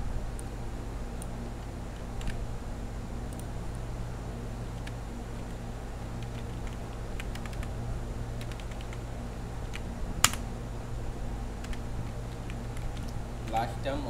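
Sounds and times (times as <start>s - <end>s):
steady low hum: 0.0s - 14.0s
keyboard key clicks: 9.7s - 10.4s.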